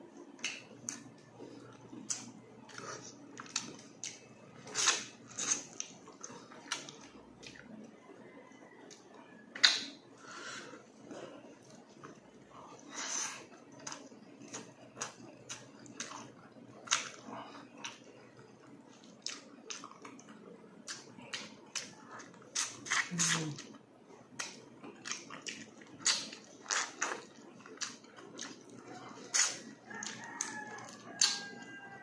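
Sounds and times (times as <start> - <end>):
open-mouth chewing smacks: 0.3 - 7.8, 13.4 - 31.5.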